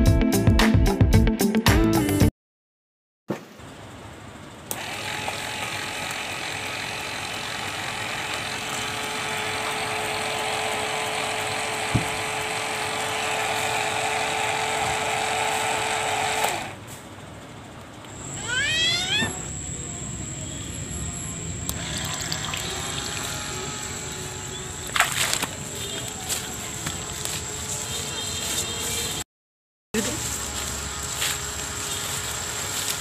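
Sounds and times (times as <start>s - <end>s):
toy motor humming: 4.8s - 16.8s, 18.2s - 19.5s, 21.7s - 25.1s.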